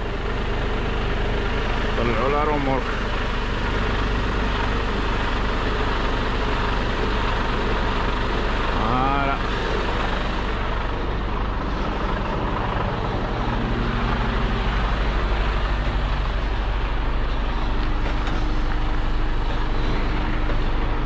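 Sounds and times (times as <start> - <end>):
truck diesel engine running: 0.0 - 21.0.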